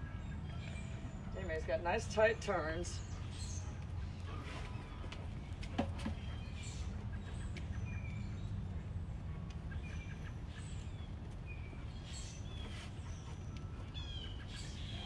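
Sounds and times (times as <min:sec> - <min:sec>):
small birds chirping: 0:00.3 - 0:15.0.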